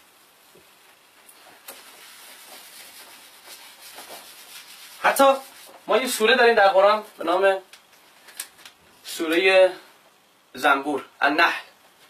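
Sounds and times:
whiteboard wiping: 0:01.4 - 0:06.2.

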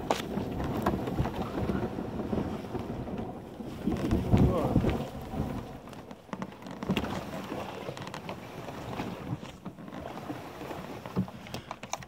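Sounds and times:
kayak hull scraping over ground: 0:00.0 - 0:12.0.

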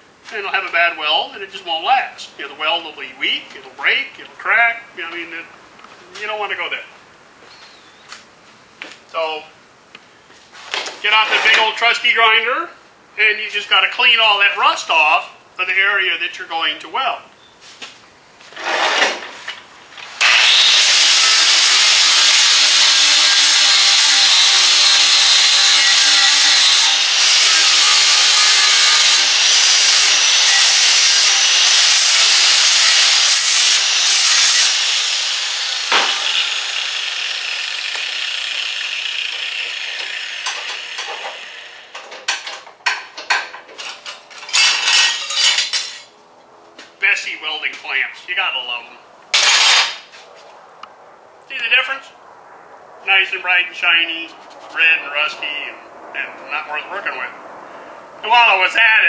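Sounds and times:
angle grinder grinding metal: 0:11.0 - 0:11.8, 0:20.2 - 0:42.5, 0:43.8 - 0:46.1
metallic clanks of tools: 0:40.4 - 0:46.1.

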